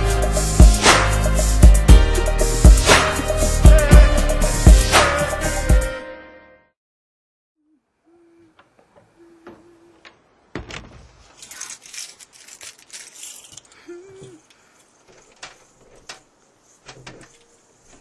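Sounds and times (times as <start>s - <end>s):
light clattering and rustling: 10.0s - 18.0s.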